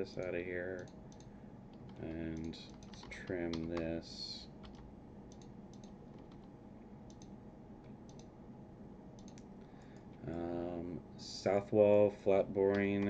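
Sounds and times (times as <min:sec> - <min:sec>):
low room hum: 0:00.0 - 0:13.0
computer mouse clicks: 0:00.2 - 0:03.9, 0:04.6 - 0:06.5, 0:07.1 - 0:08.3, 0:09.2 - 0:10.1, 0:12.7 - 0:13.0.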